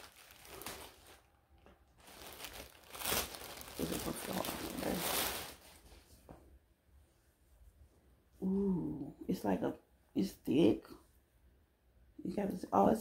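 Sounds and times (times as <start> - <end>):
plastic packaging crinkling: 0.0 - 5.9.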